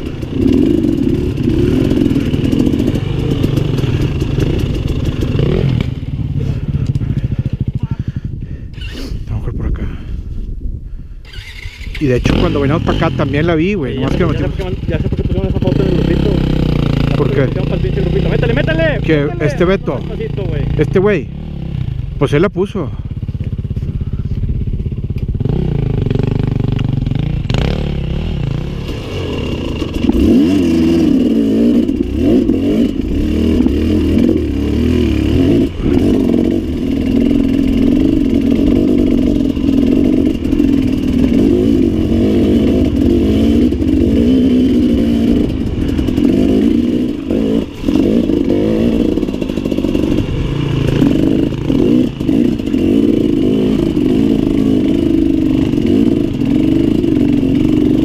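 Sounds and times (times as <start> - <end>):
clatter: 0.0 - 6.0, 28.4 - 34.5
motorcycle engine revving: 0.0 - 9.3, 11.2 - 58.0.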